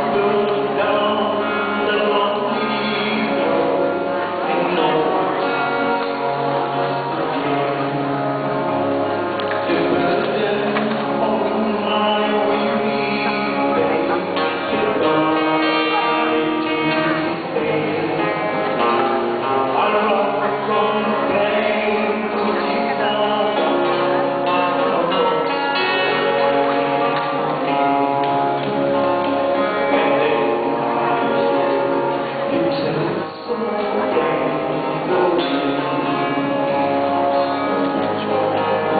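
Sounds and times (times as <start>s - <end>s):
two men singing gospel duet: 0.0s - 3.6s, 9.7s - 13.8s, 19.5s - 23.9s
guitar: 0.0s - 38.9s.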